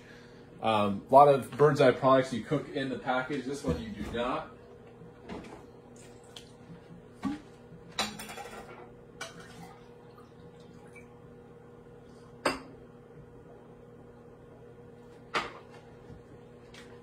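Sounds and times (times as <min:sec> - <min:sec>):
faint steady hum: 0:00.0 - 0:17.0
dishes and utensils clinking: 0:08.0 - 0:09.6.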